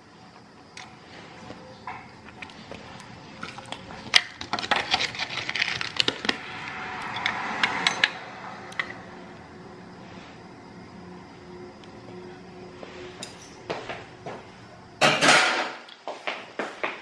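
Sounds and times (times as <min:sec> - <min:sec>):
dishes and utensils clinking: 0:13.2 - 0:13.8, 0:15.0 - 0:15.8.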